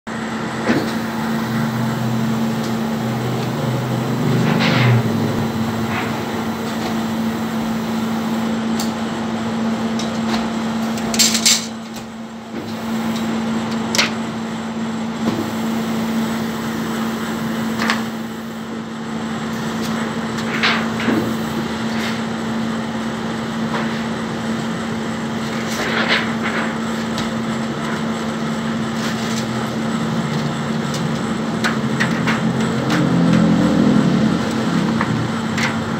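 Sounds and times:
printing press humming: 0.1 - 35.9.

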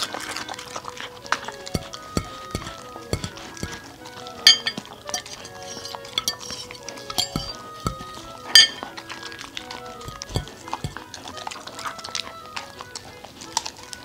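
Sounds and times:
dog licking and chewing: 0.0 - 7.0, 8.2 - 14.0
fork clinking on ceramic plate: 1.7 - 3.8, 4.5 - 9.0, 10.0 - 11.1.

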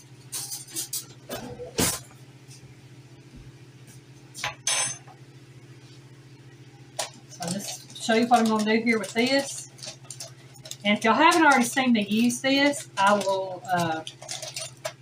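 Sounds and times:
steady low hum: 0.0 - 15.0
dishes and cutlery clinking: 0.3 - 2.0.

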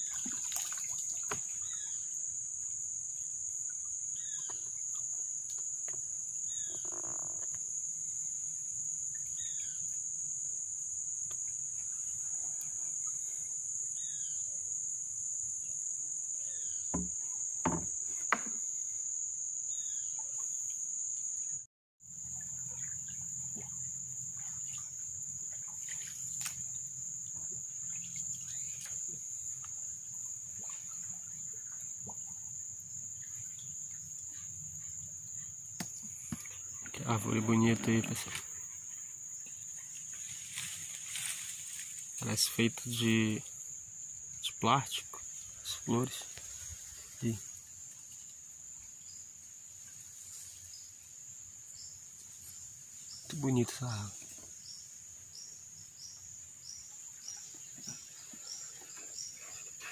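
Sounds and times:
high-pitched insect chorus: 0.0 - 59.9
sharp knocks: 16.9 - 18.6.

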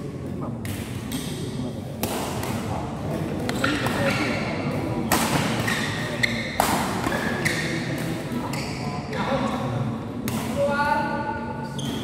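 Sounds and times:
rackets striking shuttlecock: 3.4 - 8.6.

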